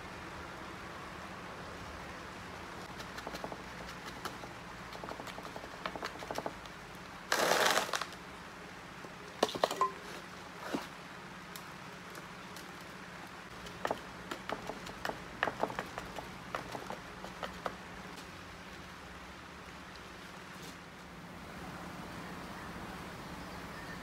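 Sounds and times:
soil crackling: 0:02.8 - 0:08.2
stick scraping soil: 0:07.3 - 0:08.2, 0:09.5 - 0:11.0.

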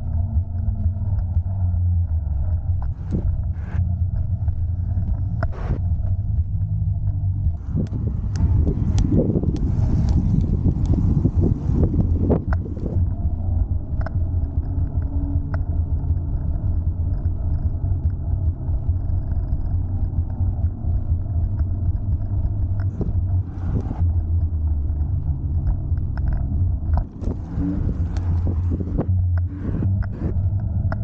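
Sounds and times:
road noise: 0:00.0 - 0:31.0
wind buffeting microphone: 0:00.0 - 0:31.0.

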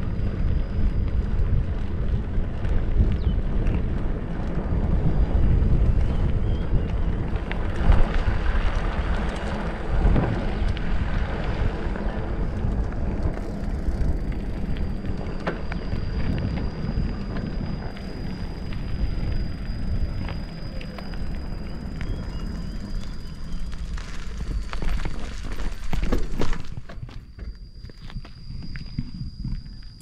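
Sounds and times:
wind buffeting microphone: 0:00.0 - 0:30.0
faint steady high tone: 0:11.9 - 0:30.0.

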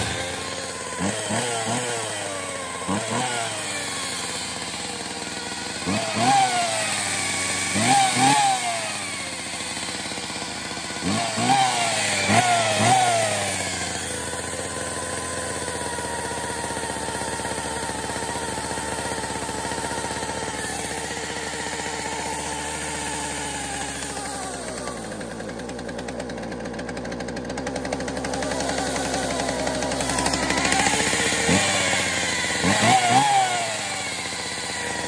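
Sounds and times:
chainsaw idling with high whine: 0:00.0 - 0:35.0
chainsaw throttle blips: 0:00.0 - 0:35.0.

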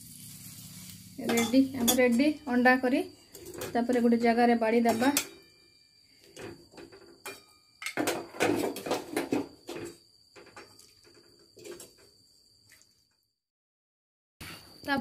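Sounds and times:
faint high whine: 0:00.0 - 0:11.8
utensils clinking on dishes: 0:01.3 - 0:02.6, 0:04.8 - 0:05.5, 0:07.2 - 0:09.4.

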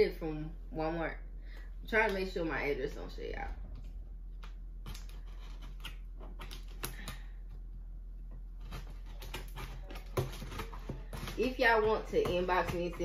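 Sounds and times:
scissors snipping tape and cardboard: 0:08.6 - 0:13.0.

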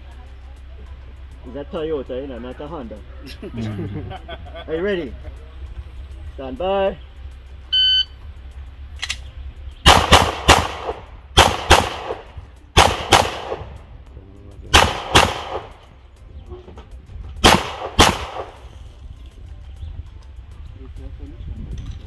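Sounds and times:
pistol shots: 0:09.8 - 0:13.8, 0:14.7 - 0:15.9, 0:17.4 - 0:18.7.

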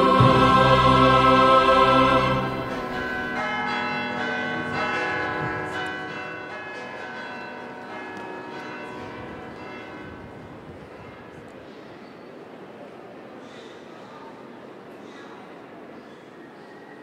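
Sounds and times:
church bells ringing: 0:00.0 - 0:11.6.

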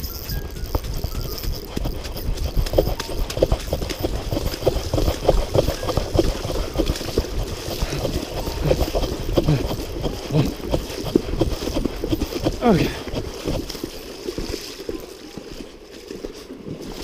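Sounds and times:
running footsteps on mud: 0:00.0 - 0:17.0.

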